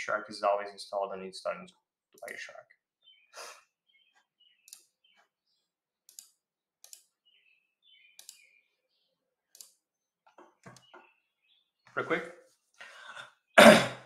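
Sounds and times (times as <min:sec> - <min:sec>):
computer mouse clicks: 0:04.6 - 0:04.9, 0:06.1 - 0:07.1, 0:08.1 - 0:08.5, 0:09.5 - 0:09.8.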